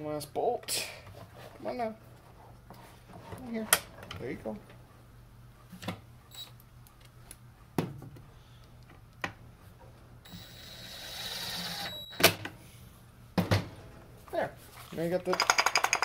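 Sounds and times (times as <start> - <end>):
cordless drill whining: 10.3 - 12.2.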